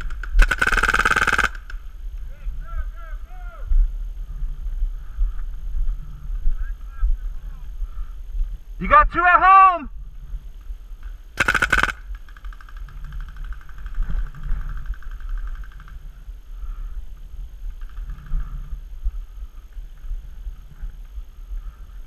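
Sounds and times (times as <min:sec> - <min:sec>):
paintball marker rapid burst: 0:00.0 - 0:01.8, 0:11.4 - 0:16.0.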